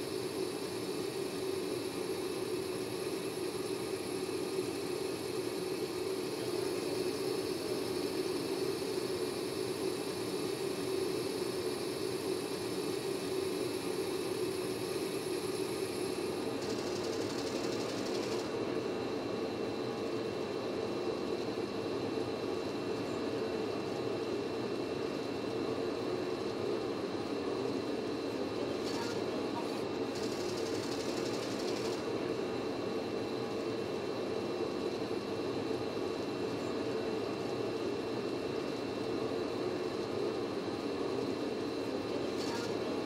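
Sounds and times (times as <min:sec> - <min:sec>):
high hiss: 0:00.0 - 0:18.6
printer mechanical hum and whir: 0:00.0 - 0:43.0.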